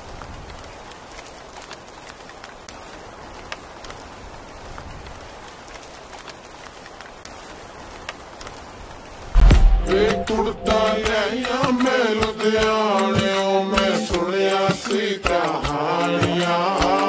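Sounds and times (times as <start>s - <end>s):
heavy rain falling: 0.0s - 13.0s.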